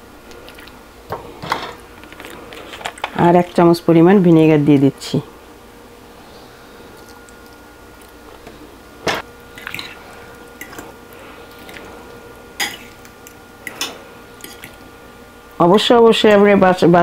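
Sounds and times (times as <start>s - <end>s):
salad squelching in a bowl: 0.2s - 0.8s, 9.4s - 14.9s.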